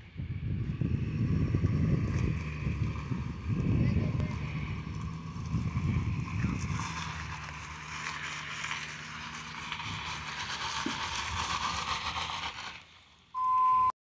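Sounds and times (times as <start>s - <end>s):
truck engine humming: 0.0s - 13.9s
loud steady beep: 13.4s - 13.9s.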